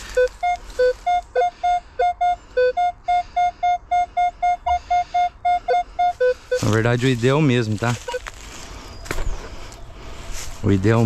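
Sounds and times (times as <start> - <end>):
metal detector beeping: 0.0 - 8.3.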